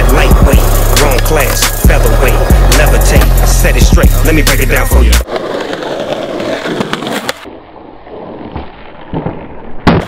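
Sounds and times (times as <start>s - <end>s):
skateboard wheels rolling on concrete: 0.0s - 10.0s
skateboard clacks: 0.1s - 4.0s, 5.2s - 7.5s.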